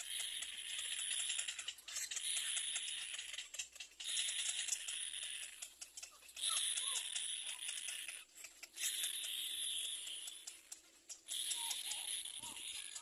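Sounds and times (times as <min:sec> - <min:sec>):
nestlings rattling begging calls: 0:00.0 - 0:13.0.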